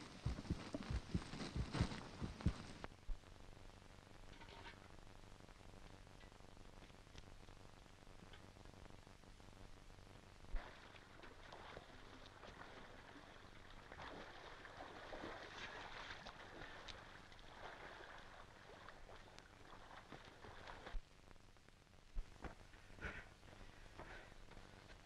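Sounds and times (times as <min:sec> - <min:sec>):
film soundtrack hum and hiss: 0:00.0 - 0:25.0
water splashing: 0:10.5 - 0:21.0.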